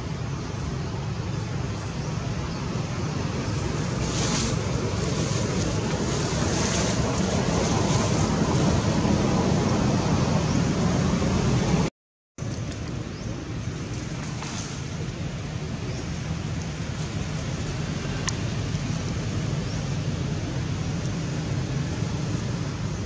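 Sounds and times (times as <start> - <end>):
wind buffeting microphone: 1.2 - 11.9.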